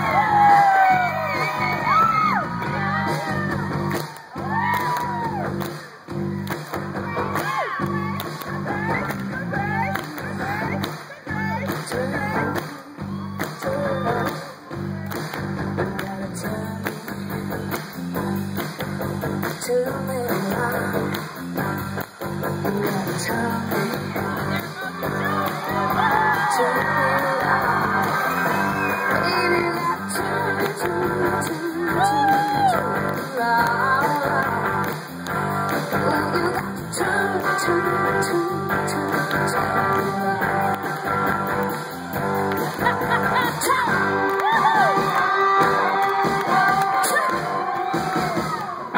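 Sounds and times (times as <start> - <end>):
drums: 0.0 - 48.9
electric guitars: 0.0 - 48.9
woman singing lead: 7.4 - 14.7, 15.8 - 17.6, 19.5 - 21.4, 22.6 - 35.0, 35.8 - 41.6, 42.8 - 48.9.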